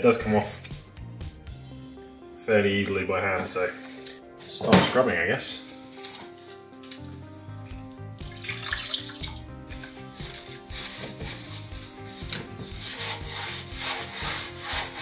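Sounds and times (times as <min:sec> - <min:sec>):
background music: 0:00.0 - 0:15.0
brush scrubbing wet metal: 0:09.6 - 0:15.0.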